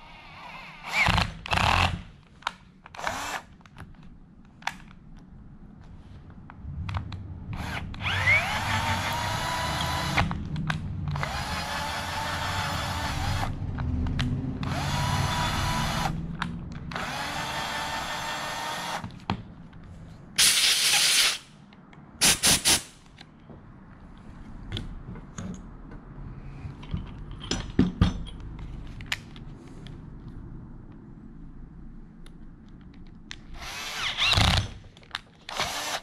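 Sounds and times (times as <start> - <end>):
cordless drill running: 3.0 - 3.4, 14.6 - 16.2, 16.9 - 19.0, 33.6 - 34.6, 35.5 - 36.0
air blow gun hissing: 20.4 - 21.5.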